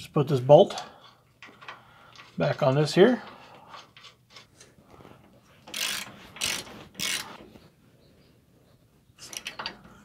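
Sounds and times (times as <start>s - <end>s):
wrench ratcheting: 5.6s - 7.4s.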